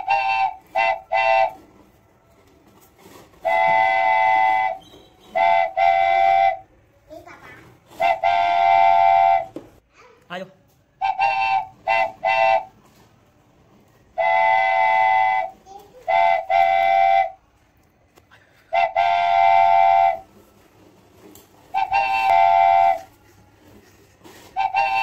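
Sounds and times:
toy electronic horn tooting: 0.0s - 1.7s, 3.4s - 6.6s, 8.0s - 9.5s, 11.0s - 12.7s, 18.7s - 20.3s, 21.7s - 23.7s, 24.4s - 25.0s.

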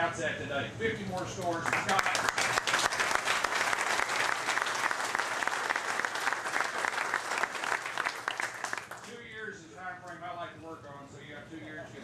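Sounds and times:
audience applauding: 1.5s - 9.2s.

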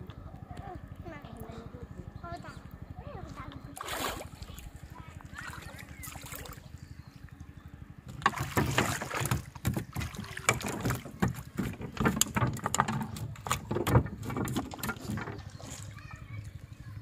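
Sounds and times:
fish flopping on wooden deck: 8.1s - 16.2s.

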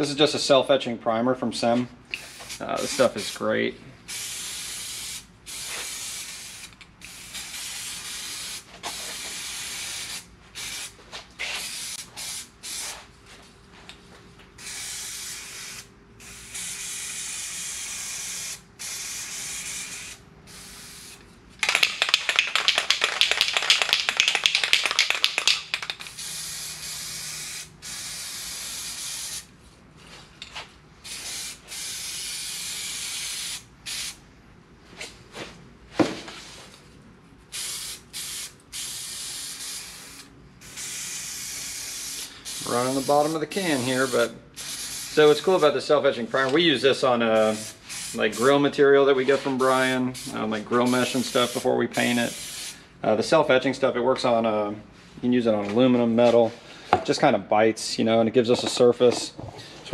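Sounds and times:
aerosol can spraying: 2.2s - 3.4s, 4.1s - 13.0s, 14.6s - 29.5s, 37.5s - 45.7s, 47.4s - 48.6s, 49.3s - 52.8s
spray can being shaken: 21.6s - 29.4s.

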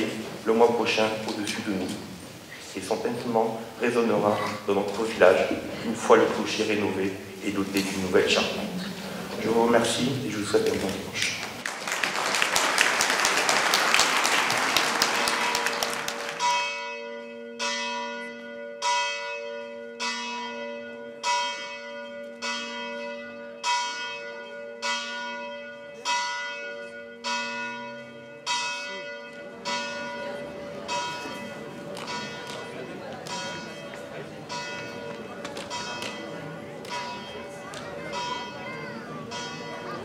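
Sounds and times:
church bell tolling: 2.9s - 8.6s, 15.4s - 40.0s
applause: 10.7s - 16.6s.

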